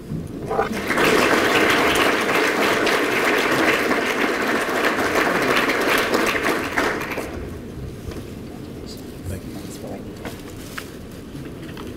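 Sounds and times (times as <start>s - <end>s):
audience applauding: 0.5s - 7.5s.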